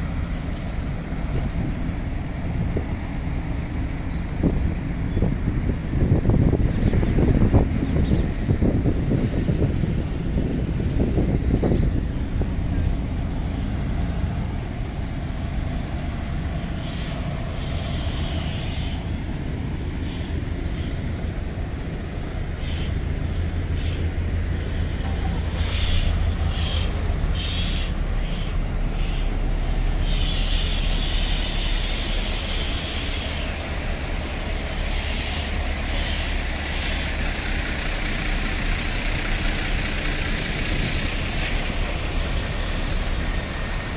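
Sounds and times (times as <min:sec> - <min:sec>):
wind buffeting microphone: 0:00.0 - 0:30.1
diesel buses idling: 0:00.0 - 0:43.9
air brake hisses: 0:25.5 - 0:37.3, 0:41.3 - 0:42.0.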